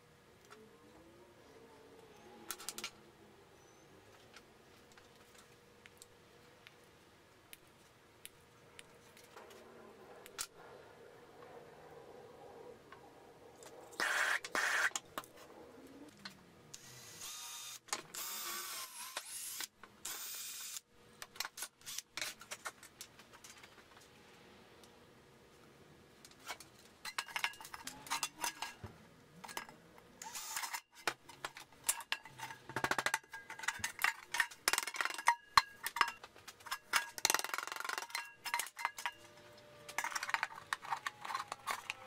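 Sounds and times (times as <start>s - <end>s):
small electric motor whirring: 16.8s - 20.8s, 30.2s - 30.8s.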